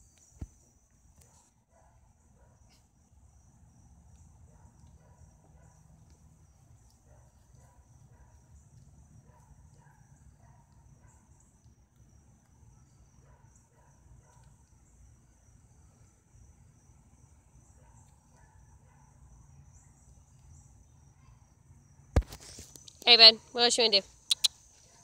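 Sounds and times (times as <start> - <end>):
crickets chirping: 0.0 - 25.0.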